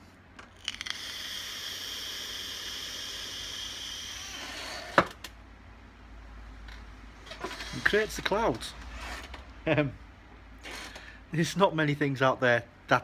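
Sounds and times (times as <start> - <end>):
e-cigarette coil hissing: 0.6 - 5.0.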